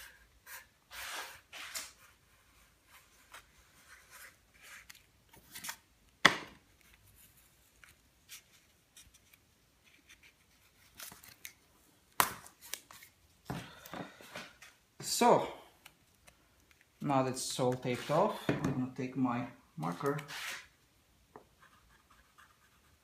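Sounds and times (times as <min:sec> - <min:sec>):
tape pulled from roll: 0:00.9 - 0:02.0, 0:20.2 - 0:20.8.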